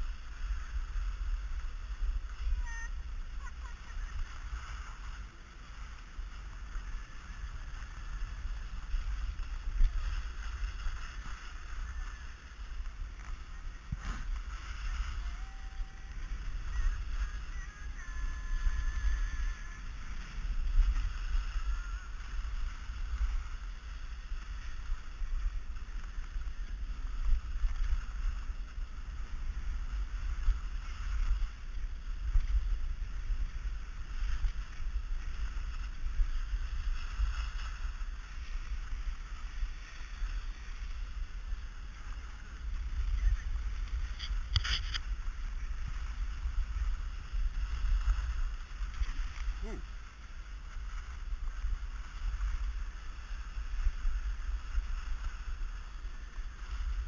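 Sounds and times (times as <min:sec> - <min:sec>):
skis sliding over snow: 0:00.0 - 0:57.0.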